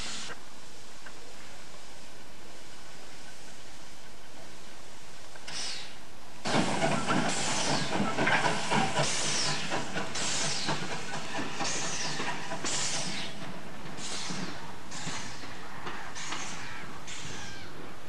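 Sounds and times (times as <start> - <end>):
steam hiss: 0.0 - 0.4, 5.4 - 17.3
steam locomotive exhaust beats: 6.4 - 18.0.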